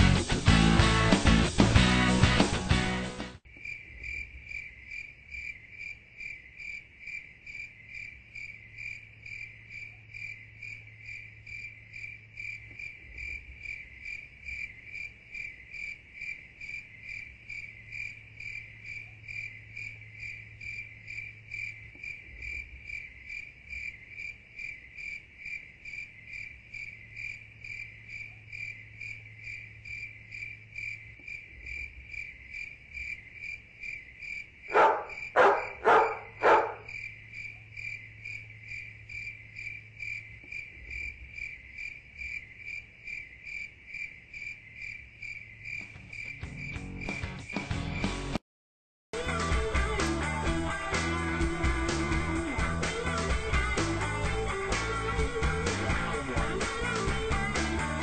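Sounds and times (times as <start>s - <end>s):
crickets chirping: 3.4s - 48.2s.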